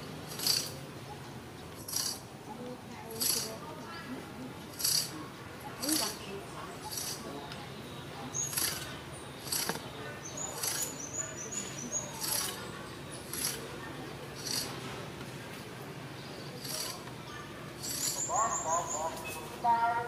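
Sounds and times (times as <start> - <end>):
high bird chirps: 8.3 - 13.6.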